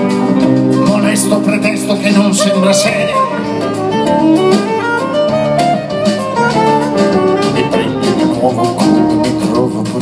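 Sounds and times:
double bass: 0.0 - 10.0
drums: 0.0 - 10.0
guitar: 0.0 - 10.0
keyboards: 0.0 - 10.0
saxophone: 2.3 - 10.0.

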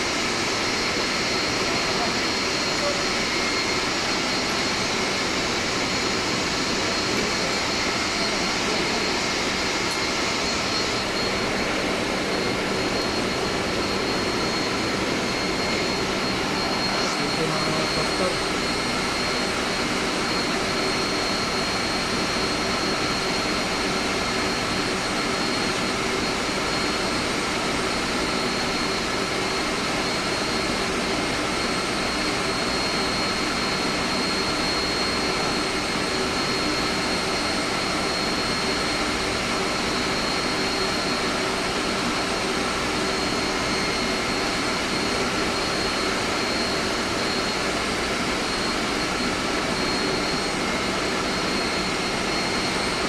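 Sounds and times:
machinery drone: 0.0 - 53.0
constant whining tones: 0.4 - 27.7.

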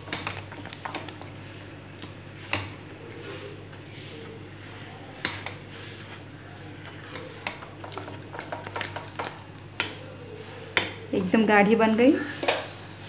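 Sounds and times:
spatula knocking and scraping pot: 0.0 - 10.0.

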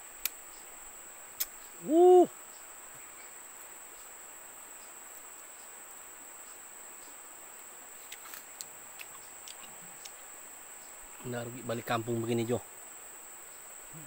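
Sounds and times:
insects droning: 0.0 - 14.0
man humming: 1.8 - 2.3.

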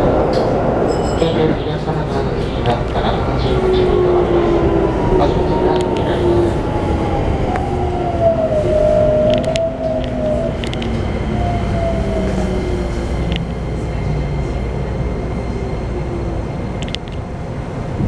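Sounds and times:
train inverter whine: 0.0 - 18.0
wheels rumbling on rails: 0.0 - 18.0
sharp clicks: 16.8 - 17.2.

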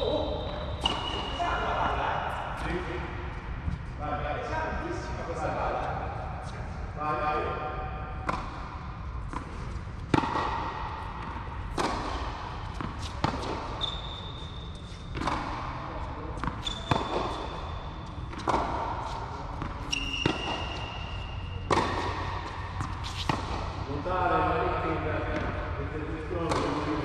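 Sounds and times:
tennis ball bouncing: 0.7 - 1.4, 8.2 - 15.8, 16.4 - 23.9, 25.3 - 25.6, 26.4 - 27.0
tennis ball hit by racket: 8.2 - 13.8, 15.1 - 15.8, 16.4 - 17.6, 18.3 - 20.8, 21.6 - 23.8, 26.4 - 27.0
short high squeaks: 13.6 - 15.1, 16.6 - 17.9, 19.9 - 21.5.

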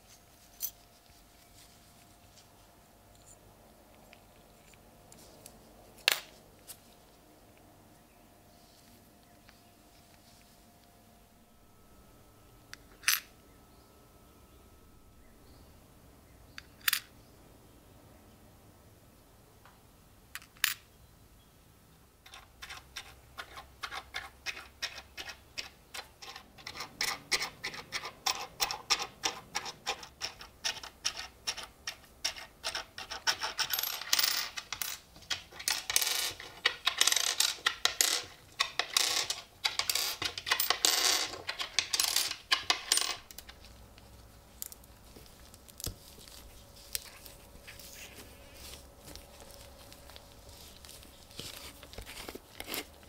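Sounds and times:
metal coins clinking: 32.3 - 43.6.

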